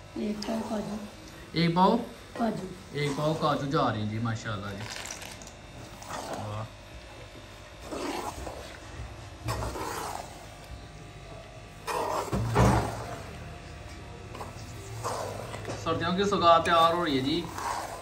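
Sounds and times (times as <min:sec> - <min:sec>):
metal spoon scraping a pot: 0:07.8 - 0:10.6, 0:11.8 - 0:13.3, 0:14.3 - 0:18.0.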